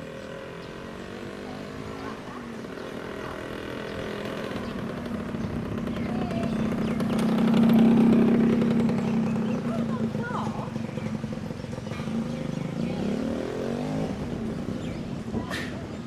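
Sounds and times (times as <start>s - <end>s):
engine drone: 0.0s - 15.3s.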